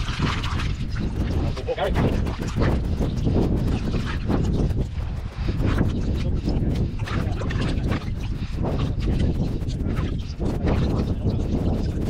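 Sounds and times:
hands sloshing water in bucket: 0:00.0 - 0:02.6
wind rumbling on microphone: 0:00.0 - 0:12.0.

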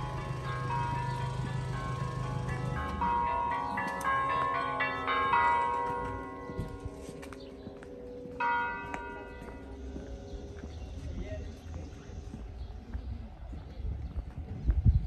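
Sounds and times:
church bells ringing: 0:00.0 - 0:11.0.

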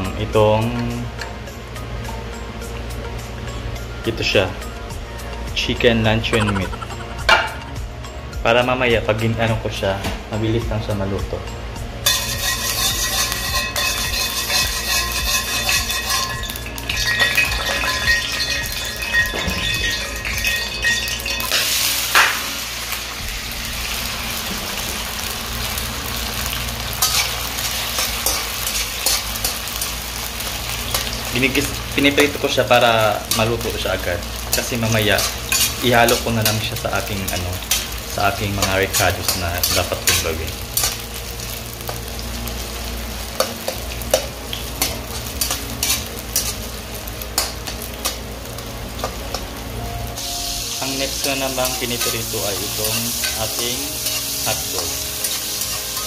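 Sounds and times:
meat sizzling in oil: 0:12.0 - 0:56.0
spatula scraping pan: 0:12.1 - 0:21.6.

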